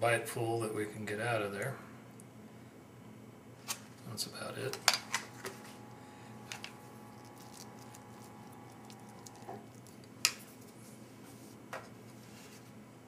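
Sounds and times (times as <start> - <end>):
steady room hum: 0.0 - 13.0.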